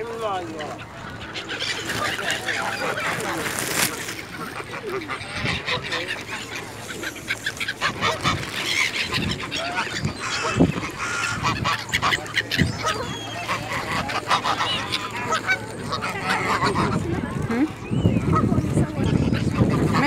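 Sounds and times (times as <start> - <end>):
geese honking: 0.6 - 17.3.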